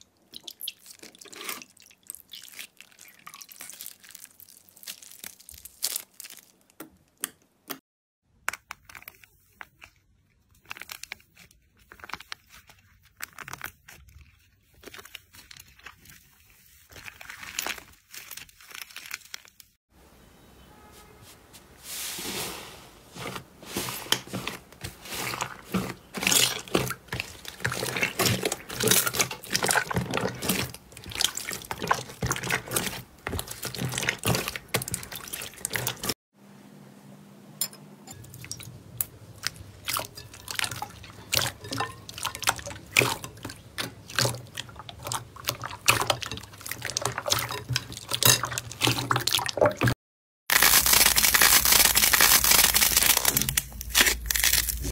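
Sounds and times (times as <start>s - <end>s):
hands squelching wet slime: 0.0s - 7.8s, 8.4s - 19.6s, 21.9s - 36.2s, 38.1s - 54.9s
stiff slime tearing and crinkling: 2.3s - 6.8s, 8.7s - 19.7s, 50.5s - 54.9s.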